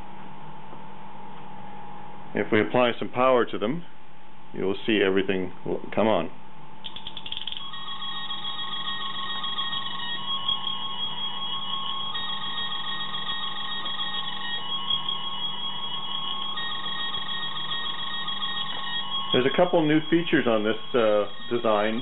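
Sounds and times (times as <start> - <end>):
warbling electronic tones: 7.0 - 22.0
high electronic beep: 9.0 - 22.0.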